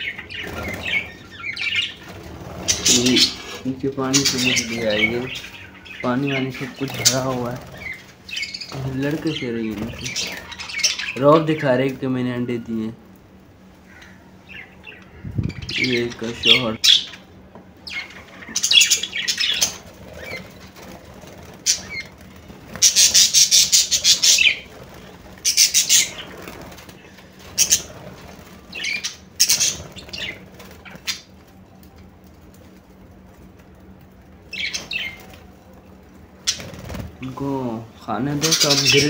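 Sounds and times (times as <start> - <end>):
wings flapping: 0.0 - 11.5, 18.0 - 37.4
budgerigars chirping: 0.0 - 11.6, 13.9 - 20.8, 21.6 - 22.2, 22.8 - 24.8, 25.4 - 26.5, 27.5 - 28.0, 28.7 - 31.3, 34.5 - 35.2, 38.2 - 39.0.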